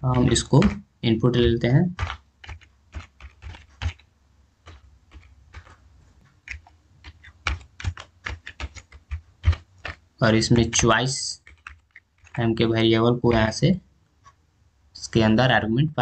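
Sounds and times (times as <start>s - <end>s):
typing on computer keyboard: 0.1s - 0.8s, 1.4s - 12.6s.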